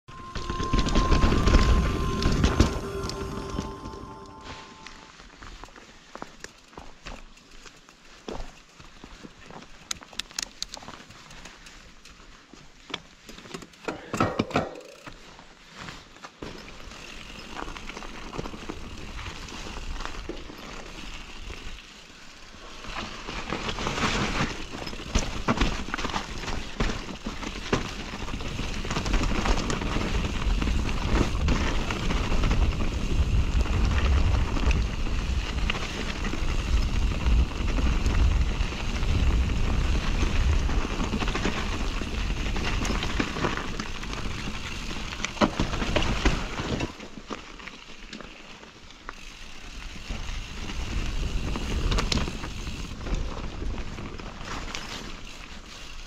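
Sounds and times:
bike tyres rolling over dirt: 0.1 - 3.8, 4.8 - 56.0
bike rattling over bumps: 16.4 - 56.0
wind rumble on microphone: 28.5 - 43.3.

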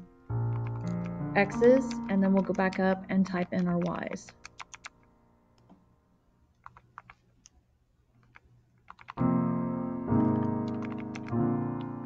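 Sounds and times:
loud piano chords: 0.0 - 5.5, 9.2 - 12.0
calculator keypad clicks: 1.7 - 5.0, 10.7 - 11.4.

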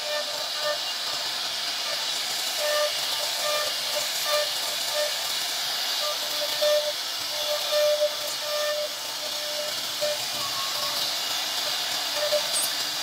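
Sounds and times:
router spindle whine: 0.0 - 13.0.

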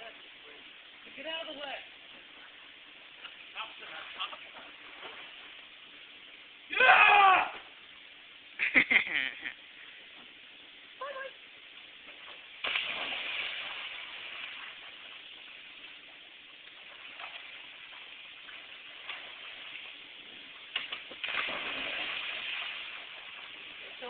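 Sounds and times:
big splashes in a pool: 12.2 - 24.0.

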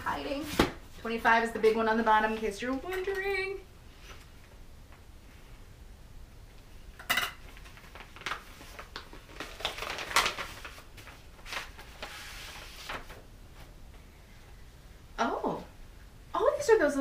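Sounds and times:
wrapping paper crinkling and tearing: 7.4 - 13.2.

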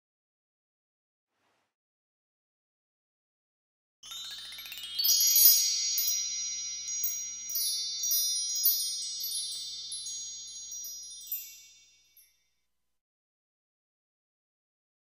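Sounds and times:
shimmering bell chimes: 4.0 - 12.6.

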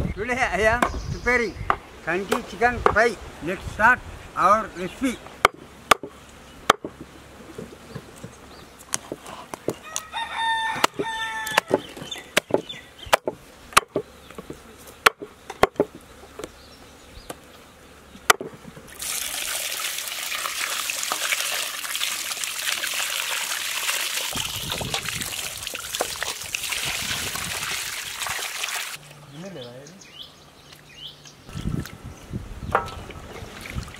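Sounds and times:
cleaver chopping chicken on wood: 5.4 - 7.0, 10.7 - 16.0, 18.3 - 18.6
rooster crowing: 9.8 - 11.9.

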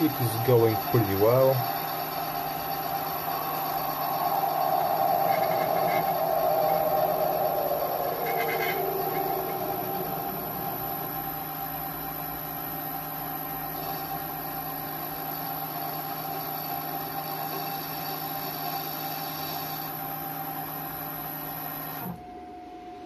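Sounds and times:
hissy cutting noise: 0.0 - 12.8
lathe whining: 0.0 - 22.2.

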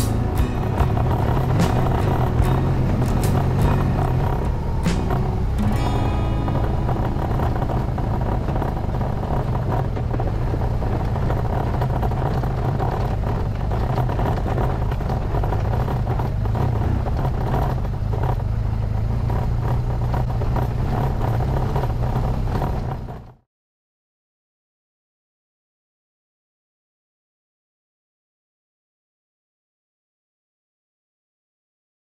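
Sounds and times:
motorcycle engine droning: 0.0 - 23.4.

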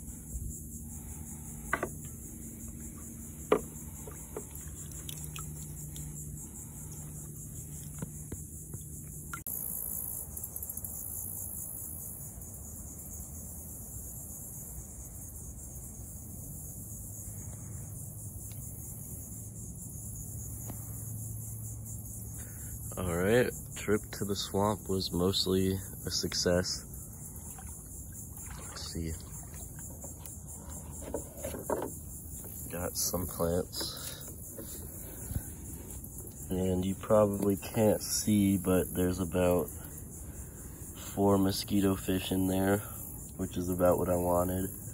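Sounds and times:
insects chorus: 0.0 - 44.9
sharp knocks: 3.4 - 4.5.

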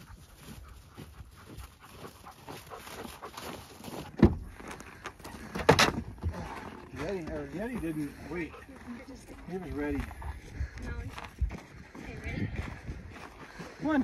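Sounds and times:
dog panting: 0.0 - 5.5, 7.0 - 11.4
faint footsteps: 0.0 - 14.0.

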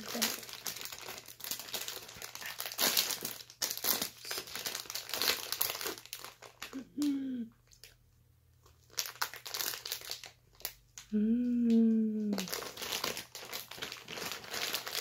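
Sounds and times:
plastic wrappers crinkling: 0.0 - 6.9, 8.6 - 11.1, 12.3 - 15.0
person humming: 6.7 - 7.5, 11.1 - 12.5.

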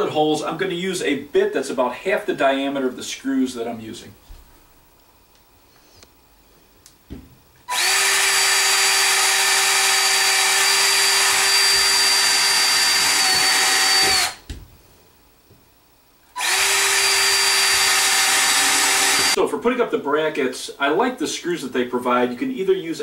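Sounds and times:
cordless drill whining: 7.7 - 14.4, 16.4 - 19.4.

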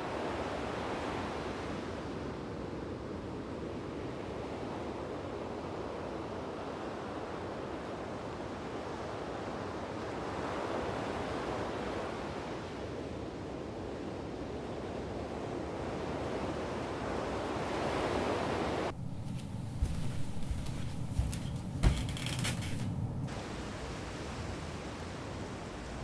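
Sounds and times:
wind and surf rushing: 0.0 - 21.9, 23.0 - 26.0
indoor knocks and clicks: 21.2 - 23.0.

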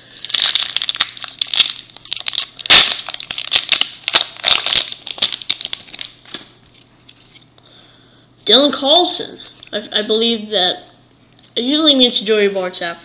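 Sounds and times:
wrapper tearing and crinkling: 0.0 - 6.4.

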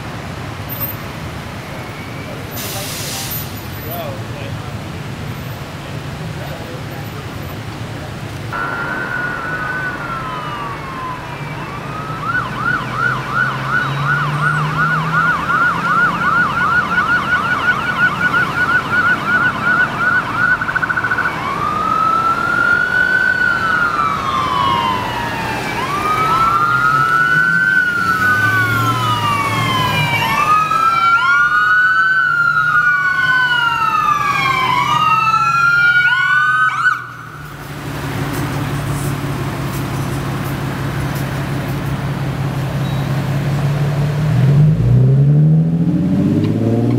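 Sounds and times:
ambulance siren wailing and yelping: 8.6 - 37.6.

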